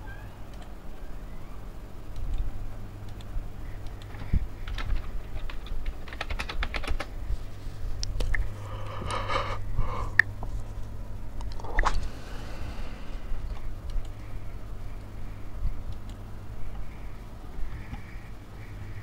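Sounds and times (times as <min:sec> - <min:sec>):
low steady hum: 0:00.0 - 0:19.0
typing on a keyboard: 0:02.2 - 0:07.2.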